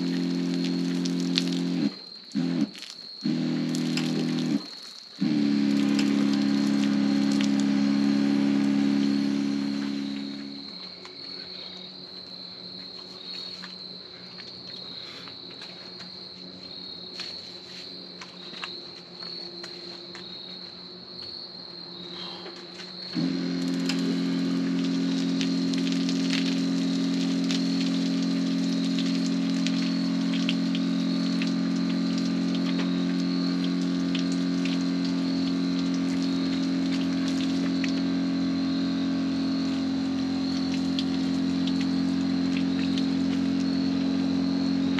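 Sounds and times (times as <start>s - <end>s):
water spraying and pattering: 0.0s - 10.6s, 23.2s - 44.9s
water pump humming: 0.0s - 20.2s, 22.4s - 44.9s.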